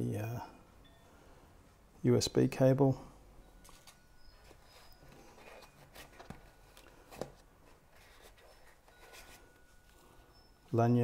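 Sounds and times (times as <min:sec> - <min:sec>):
fingers handling foam box: 0:04.3 - 0:09.5.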